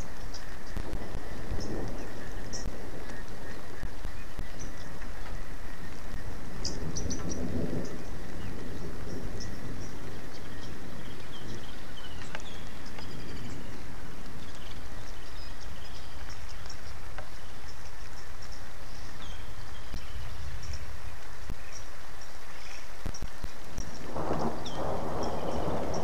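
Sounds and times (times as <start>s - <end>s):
low rumble of thunder: 0.0s - 16.6s, 22.5s - 26.0s
rain hissing: 0.0s - 26.0s
wind: 0.0s - 26.0s.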